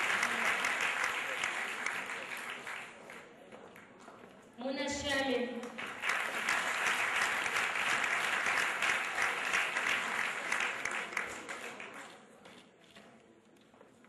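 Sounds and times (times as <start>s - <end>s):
audience applauding: 0.0s - 3.3s, 5.6s - 12.1s.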